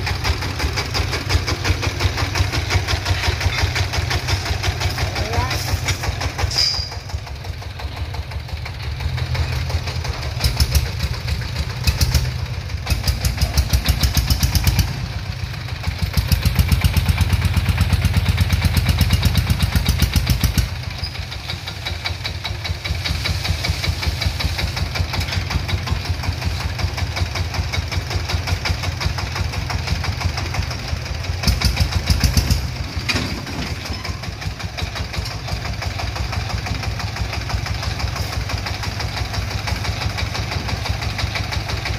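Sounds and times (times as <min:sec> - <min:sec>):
diesel engine knocking: 0:00.0 - 0:41.9.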